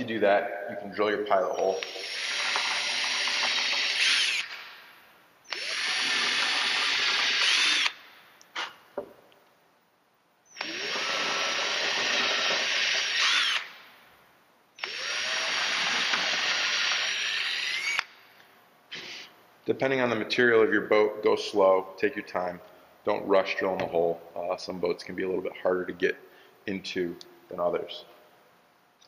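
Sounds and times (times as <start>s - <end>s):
cordless drill boring into wood: 1.8s - 4.8s, 5.5s - 8.7s, 10.5s - 13.8s, 14.8s - 18.1s.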